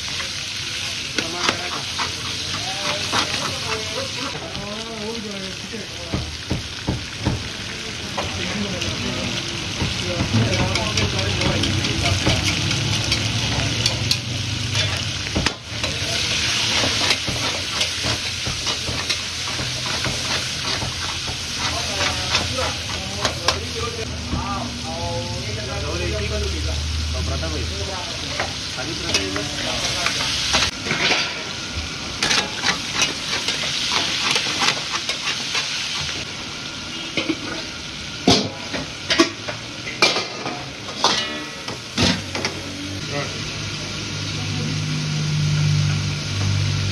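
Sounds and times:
meat sizzling in hot oil: 0:00.0 - 0:46.9
metal spatula scraping a pan: 0:01.2 - 0:04.4, 0:10.4 - 0:15.1, 0:15.8 - 0:23.8, 0:32.2 - 0:36.2.

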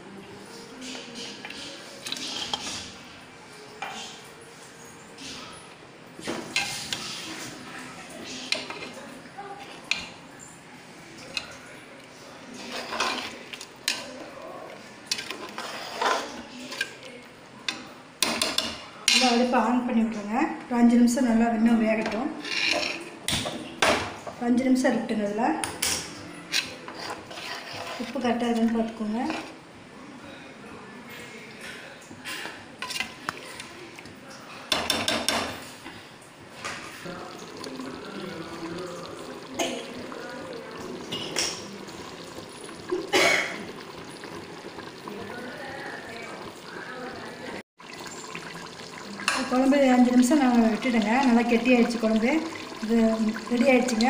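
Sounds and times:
ladle stirring gravy: 0:00.8 - 0:03.1, 0:06.4 - 0:10.2, 0:11.0 - 0:19.4, 0:26.5 - 0:29.6, 0:31.1 - 0:54.0.

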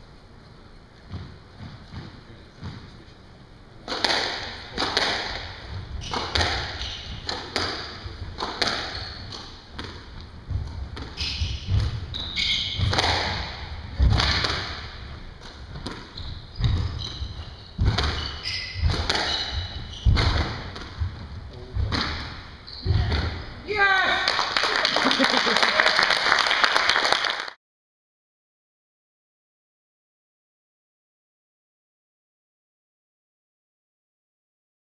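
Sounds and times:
squash ball hitting rackets and walls: 0:01.1 - 0:02.9, 0:03.8 - 0:23.5
shoes squeaking on wooden floor: 0:04.4 - 0:23.5.

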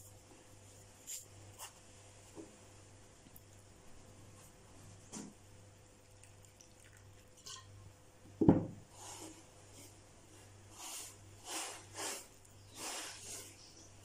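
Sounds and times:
liquid trickling from a bottle: 0:06.0 - 0:07.7
glass bottle thump on wood: 0:08.4 - 0:08.8.

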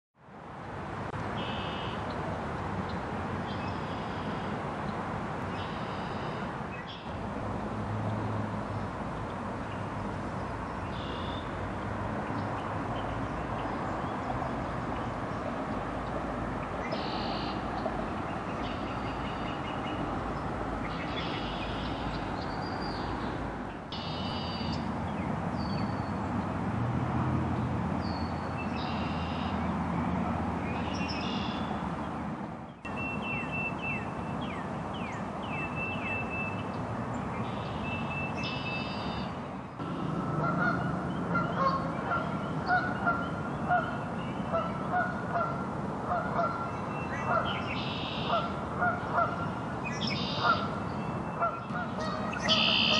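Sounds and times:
songbirds calling: 0:01.3 - 0:07.3, 0:08.6 - 0:26.6, 0:27.5 - 0:52.9
repeated honking calls: 0:23.9 - 0:24.8, 0:38.5 - 0:46.6, 0:51.4 - 0:52.9.

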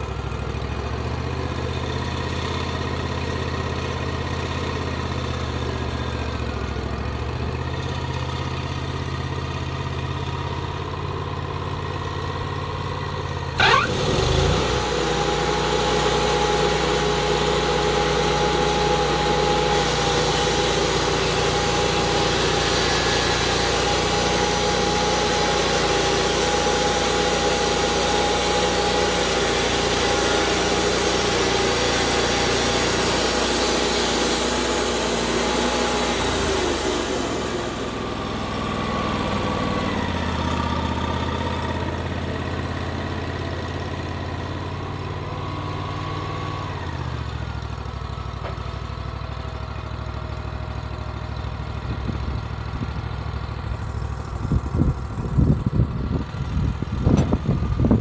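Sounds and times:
sawmill engine running: 0:00.0 - 0:58.0
band blade sawing log: 0:13.6 - 0:38.4.

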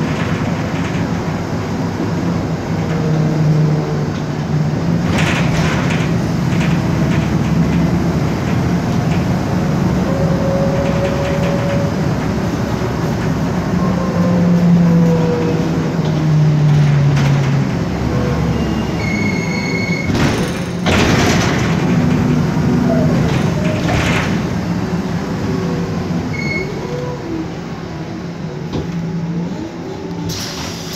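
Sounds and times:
bus engine droning: 0:00.0 - 0:30.9
loud bursts of hiss: 0:30.3 - 0:30.9.

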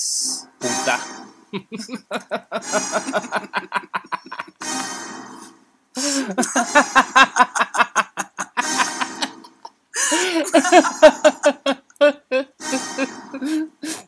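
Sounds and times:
woman laughing loudly: 0:01.6 - 0:04.7, 0:06.1 - 0:14.0.

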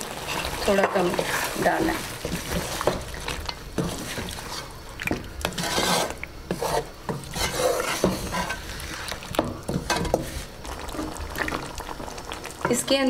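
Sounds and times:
wooden spatula scraping metal pan: 0:00.2 - 0:04.8, 0:05.4 - 0:11.1.

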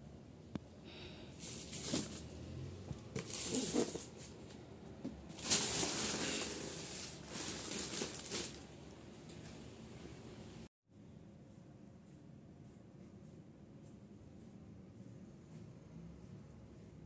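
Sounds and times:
plastic bags rustling: 0:01.3 - 0:02.4, 0:03.1 - 0:04.5, 0:05.2 - 0:09.4.

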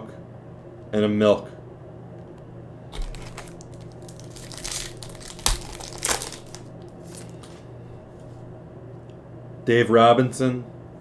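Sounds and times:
wrapper snapping: 0:02.9 - 0:07.6
foil wrapper crinkling: 0:02.9 - 0:07.7.

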